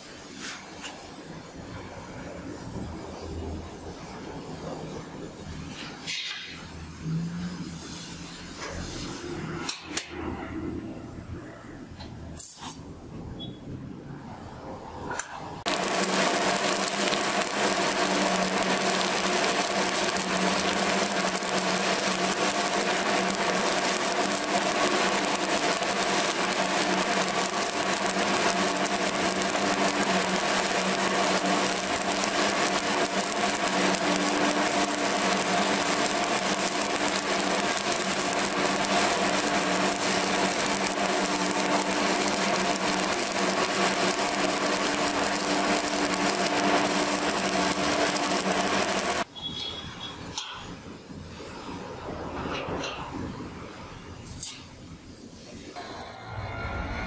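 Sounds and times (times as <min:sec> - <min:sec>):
welding arc crackling and sizzling: 0:12.3 - 0:13.0, 0:15.0 - 0:49.3
steady hum: 0:15.5 - 0:49.3.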